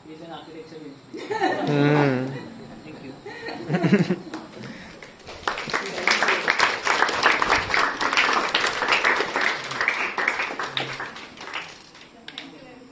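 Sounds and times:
audience applauding: 0:03.9 - 0:12.2.

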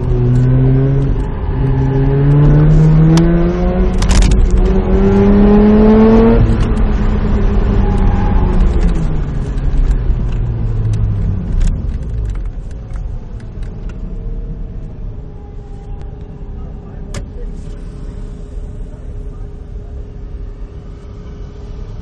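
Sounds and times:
car engine revs falling: 0:00.0 - 0:12.2.

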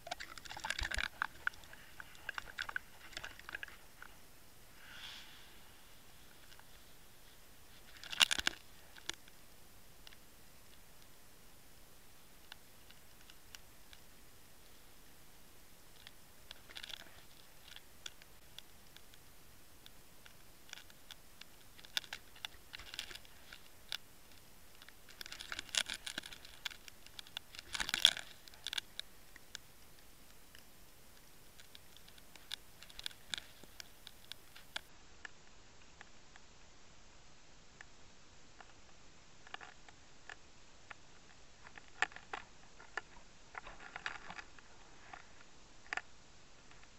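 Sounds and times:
underwater clicks and crackles: 0:00.0 - 0:04.2, 0:07.7 - 0:09.4, 0:12.4 - 0:14.8, 0:15.8 - 0:34.9, 0:38.6 - 0:46.9.

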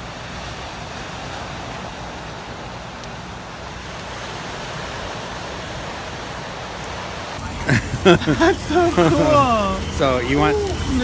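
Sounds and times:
ocean surf on cobble beach: 0:00.0 - 0:11.0.

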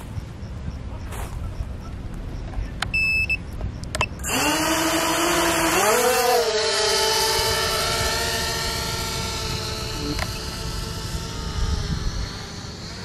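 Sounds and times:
drone propellers whining: 0:02.8 - 0:13.0
short electronic beep: 0:02.9 - 0:04.1.

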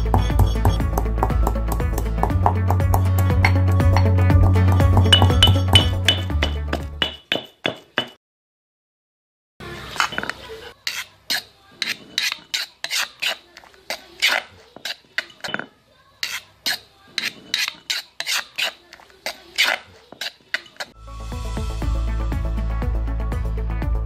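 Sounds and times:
metal spoon scraping stone: 0:00.0 - 0:01.4, 0:02.0 - 0:08.2, 0:10.0 - 0:21.0
pestle pounding in stone mortar: 0:00.0 - 0:08.2.

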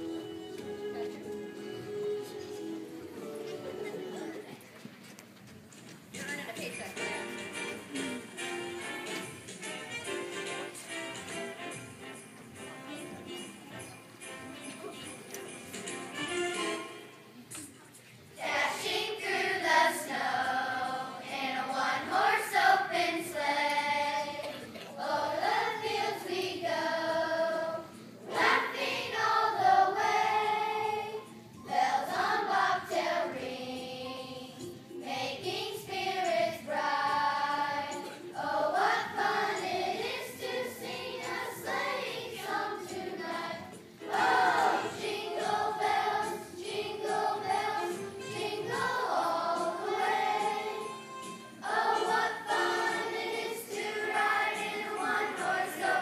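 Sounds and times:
children's choir singing: 0:00.0 - 0:04.6, 0:18.4 - 0:56.0.

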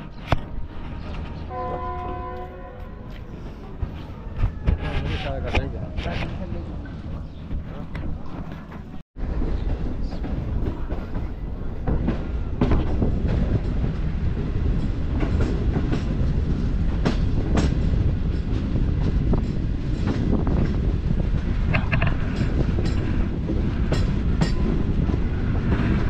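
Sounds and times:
train wheels rumbling: 0:00.0 - 0:26.0
clicks and clanks over rail joints: 0:17.0 - 0:24.8.

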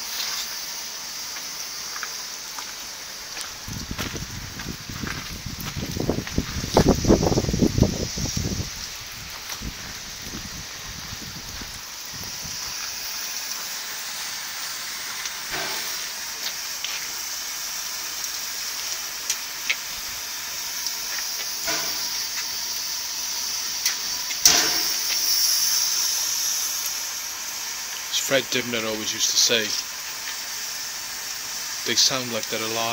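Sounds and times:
steam hissing from locomotive: 0:00.0 - 0:32.9
sharp clicks and knocks: 0:23.8 - 0:25.2.

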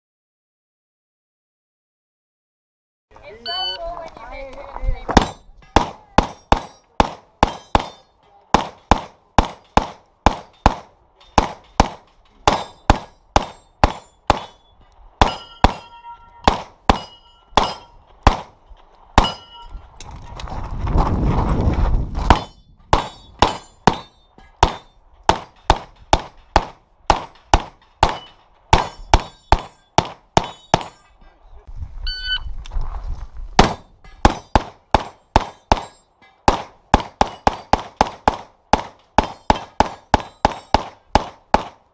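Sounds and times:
pistol shots: 0:05.1 - 0:14.6, 0:15.2 - 0:18.6, 0:22.3 - 0:31.0, 0:33.6 - 0:41.9
bullets ringing on steel targets: 0:05.1 - 0:18.5, 0:19.2 - 0:19.9, 0:22.3 - 0:31.4, 0:33.6 - 0:41.8.

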